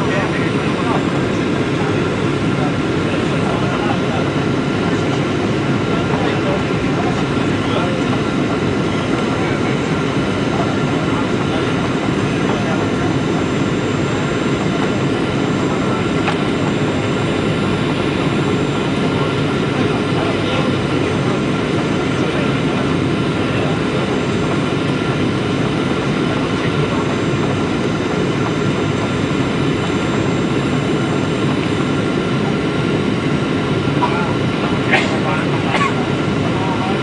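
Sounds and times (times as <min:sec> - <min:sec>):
airliner cabin rumble: 0:00.0 - 0:37.0
faint steady whine: 0:00.0 - 0:37.0.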